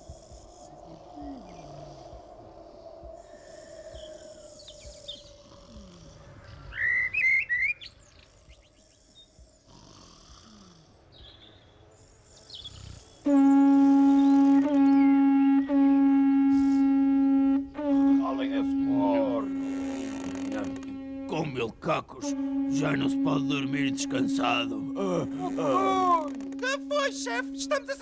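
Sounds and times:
bird chirps: 0:03.2 - 0:05.6, 0:06.4 - 0:09.4
horn trumpet low note: 0:13.2 - 0:28.0.

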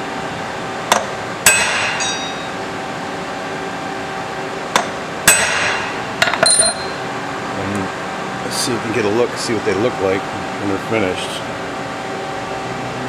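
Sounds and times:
hammer striking metal punch: 0:00.9 - 0:02.6, 0:04.8 - 0:07.0.

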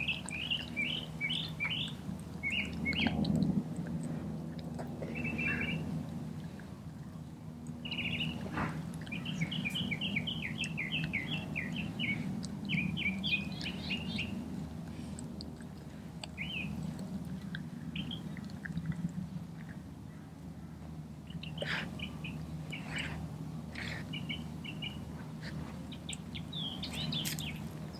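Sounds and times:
dog licking and chewing: 0:00.0 - 0:09.9, 0:14.4 - 0:19.9
low steady hum: 0:00.0 - 0:27.9
songbird chirping: 0:00.0 - 0:27.9.

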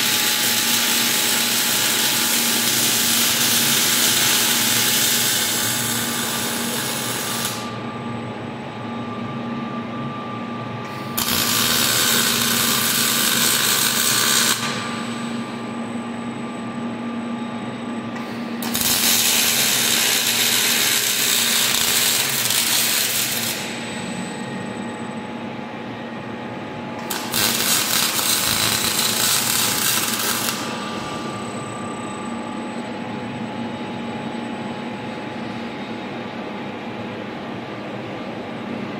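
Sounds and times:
welding arc sizzling: 0:00.0 - 0:07.8, 0:11.0 - 0:15.5, 0:18.6 - 0:24.2, 0:27.0 - 0:31.4
machine hum: 0:00.0 - 0:38.9
thin high whine: 0:27.1 - 0:36.0.

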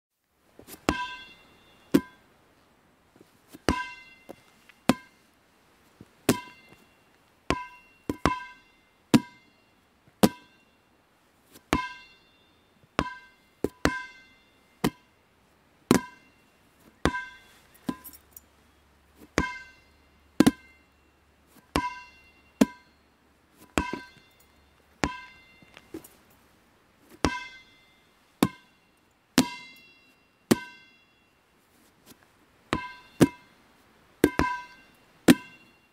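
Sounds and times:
rubber ball bouncing: 0:03.6 - 0:04.1, 0:04.9 - 0:05.1, 0:06.3 - 0:06.6, 0:07.5 - 0:09.4, 0:10.2 - 0:10.5, 0:14.8 - 0:15.0, 0:15.9 - 0:16.2, 0:19.3 - 0:19.8, 0:20.4 - 0:20.7, 0:21.7 - 0:22.9, 0:23.6 - 0:24.2, 0:25.0 - 0:26.0, 0:28.4 - 0:28.6, 0:30.5 - 0:30.8, 0:32.7 - 0:33.5, 0:34.2 - 0:35.6.

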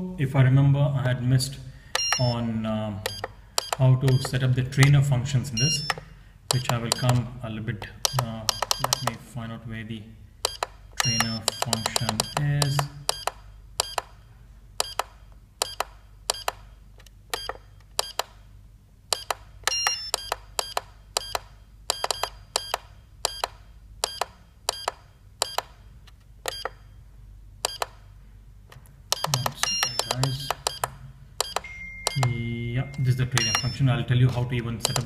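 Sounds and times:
short electronic key beeps: 0:02.0 - 0:02.4, 0:03.1 - 0:04.4, 0:05.6 - 0:06.1, 0:10.5 - 0:14.0, 0:19.2 - 0:25.6, 0:26.5 - 0:27.0, 0:29.1 - 0:30.8, 0:31.4 - 0:34.0.

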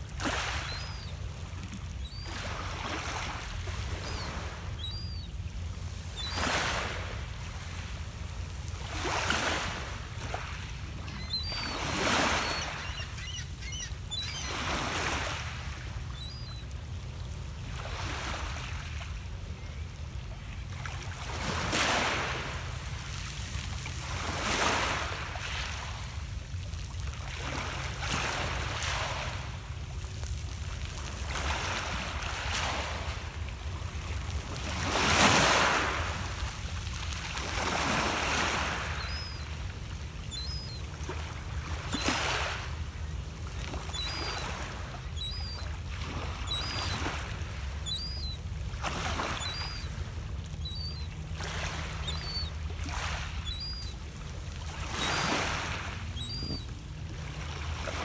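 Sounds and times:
waves breaking on pebble beach: 0:00.0 - 0:01.0, 0:06.3 - 0:07.1, 0:37.2 - 0:40.0, 0:41.1 - 0:43.0, 0:54.6 - 0:56.6.

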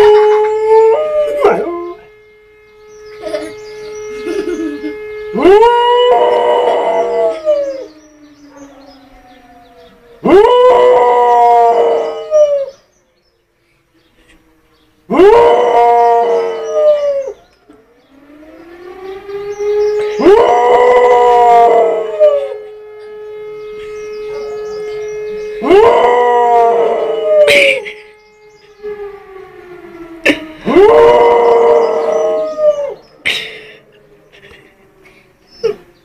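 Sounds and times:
dog howling: 0:00.0 - 0:02.1, 0:08.5 - 0:12.8, 0:15.1 - 0:17.4, 0:20.1 - 0:22.6, 0:25.6 - 0:27.9, 0:30.6 - 0:33.0
faint steady wailing tone: 0:00.0 - 0:36.0.

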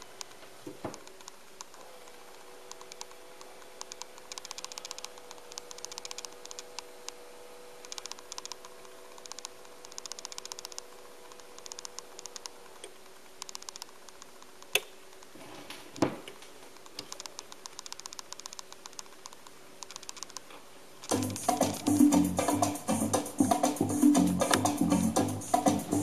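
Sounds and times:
faint rapid clicking: 0:00.0 - 0:07.2, 0:07.8 - 0:15.4, 0:16.3 - 0:22.0
low steady hum: 0:00.0 - 0:26.0
sharp click: 0:02.6 - 0:07.2, 0:07.8 - 0:15.3, 0:16.3 - 0:21.9
music from record: 0:21.1 - 0:26.0.

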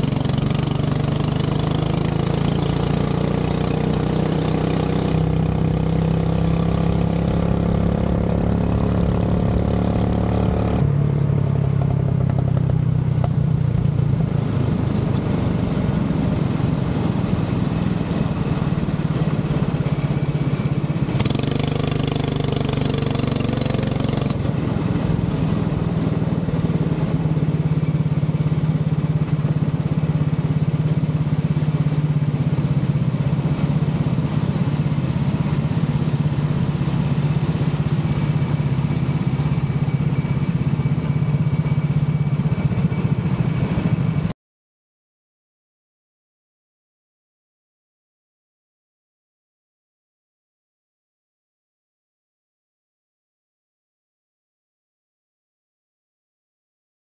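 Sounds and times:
go-kart engine running: 0:00.0 - 0:44.3.

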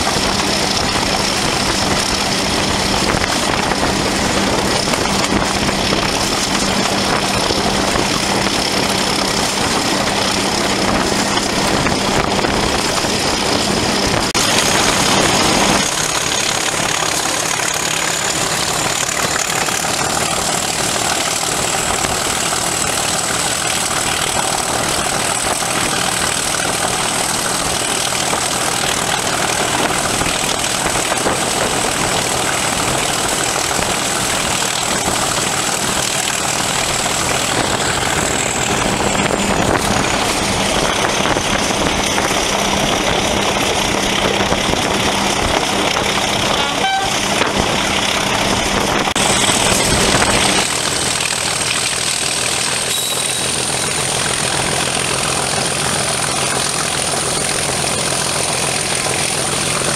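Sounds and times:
locomotive diesel engine: 0:00.0 - 0:59.9
train rolling noise: 0:00.0 - 0:59.9
high whistle: 0:46.6 - 0:47.2, 0:52.9 - 0:53.6.

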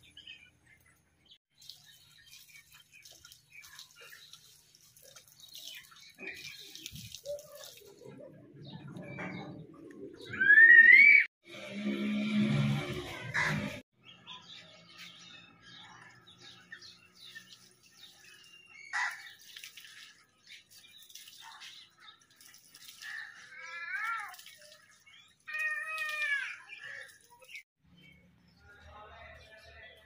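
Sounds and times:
tap water running and splashing: 0:01.5 - 0:08.2, 0:17.3 - 0:27.6.

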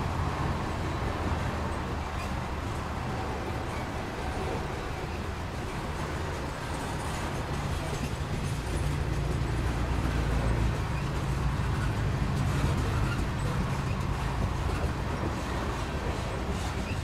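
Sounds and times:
passing vehicles rumbling: 0:00.0 - 0:17.0.

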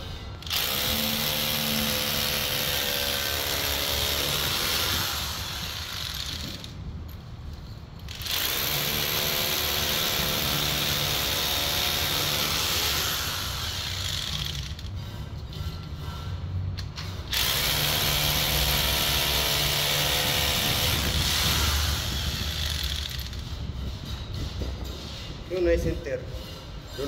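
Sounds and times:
hammer drill boring into concrete: 0:00.4 - 0:06.8, 0:08.1 - 0:15.0, 0:17.3 - 0:23.4.

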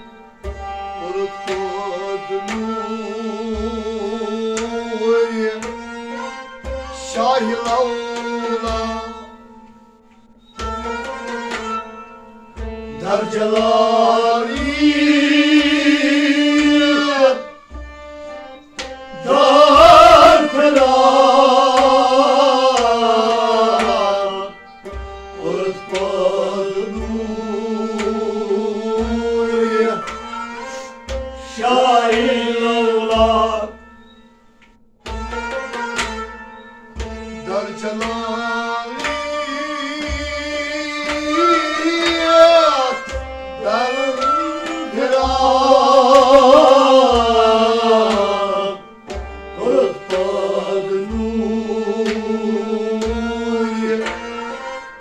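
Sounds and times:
harmonium drone: 0:00.0 - 0:55.0
plucked and bowed strings: 0:00.0 - 0:55.0
man singing: 0:01.0 - 0:05.7, 0:07.0 - 0:09.3, 0:13.0 - 0:17.5, 0:19.1 - 0:24.6, 0:25.4 - 0:30.1, 0:30.9 - 0:33.8, 0:37.4 - 0:48.9, 0:49.5 - 0:54.3
goblet drum beating: 0:10.4 - 0:55.0.

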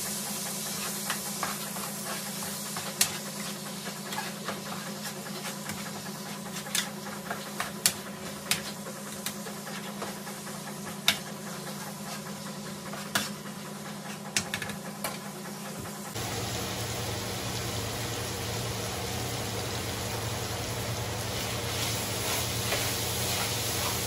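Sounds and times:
steady low hum: 0:16.1 - 0:24.0
meat sizzling in a frying pan: 0:16.2 - 0:24.0.

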